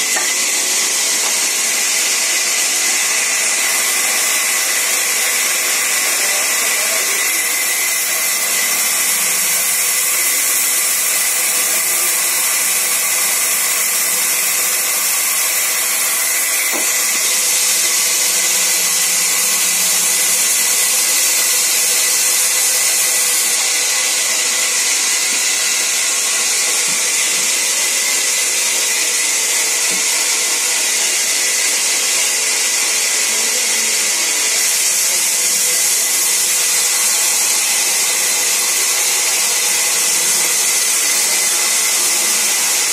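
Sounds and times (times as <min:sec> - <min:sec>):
band saw ripping a plank: 0:00.0 - 0:19.8.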